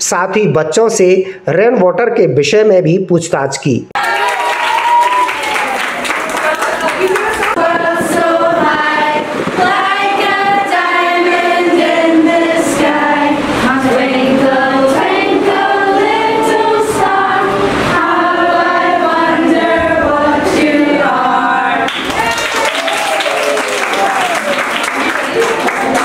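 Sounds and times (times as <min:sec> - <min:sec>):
children and adults singing: 0:06.1 - 0:22.3.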